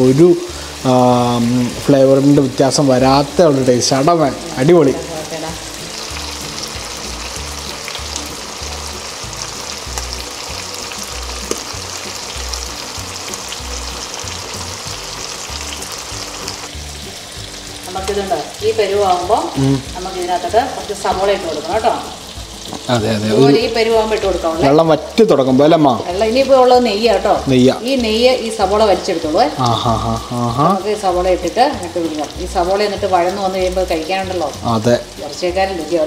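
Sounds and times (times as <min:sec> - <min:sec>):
meat sizzling in a pan: 0:00.0 - 0:36.0
person talking: 0:17.9 - 0:20.0, 0:22.9 - 0:26.6.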